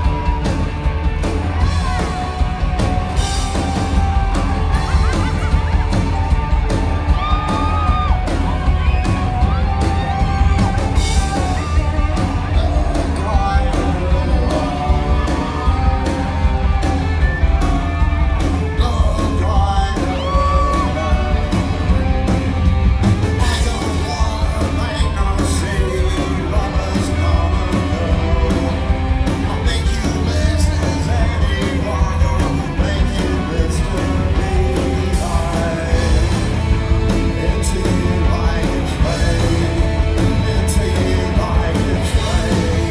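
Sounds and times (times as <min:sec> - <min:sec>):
rock band playing live: 0:00.0 - 0:42.9
person singing lead vocal: 0:07.1 - 0:22.3, 0:23.2 - 0:42.9.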